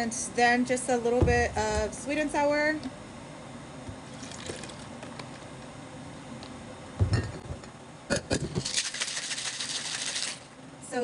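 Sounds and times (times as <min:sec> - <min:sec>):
thump and knocks of bottles: 0:01.2 - 0:02.0, 0:07.0 - 0:07.6
liquid poured into metal shaker: 0:08.6 - 0:10.5.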